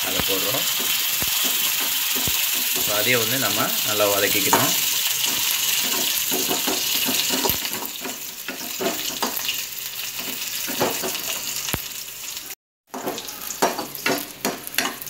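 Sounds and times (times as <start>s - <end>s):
sizzling in hot oil: 0.0s - 15.0s.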